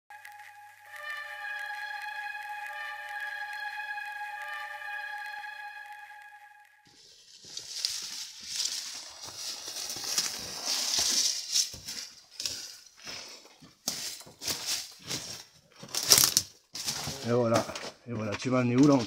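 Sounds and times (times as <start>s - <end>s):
footsteps crunching on gravel: 6.9s - 19.0s
rustling through scrub: 7.0s - 17.4s.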